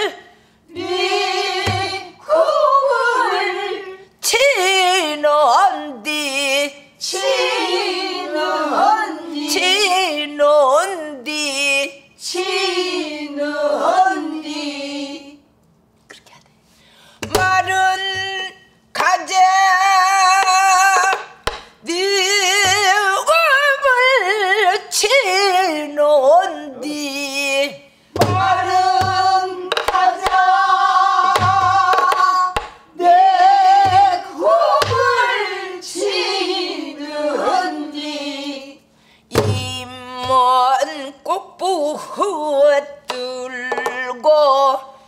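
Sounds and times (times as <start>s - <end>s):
woman singing with vibrato: 0.0s - 15.4s, 17.2s - 45.0s
stick striking barrel drum: 1.6s - 2.0s, 17.2s - 18.3s, 20.3s - 21.8s, 28.2s - 30.6s, 31.2s - 32.8s, 33.8s - 35.3s, 39.3s - 40.4s.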